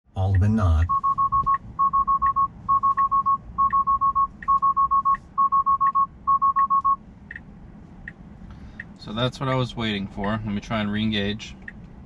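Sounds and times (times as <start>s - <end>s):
car alarm short beeps: 0.8s - 7.0s.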